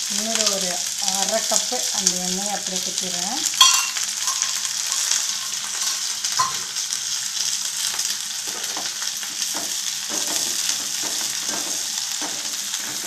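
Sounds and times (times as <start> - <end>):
onions sizzling in oil: 0.0 - 13.0
spatula clicking on pan: 3.6 - 6.7.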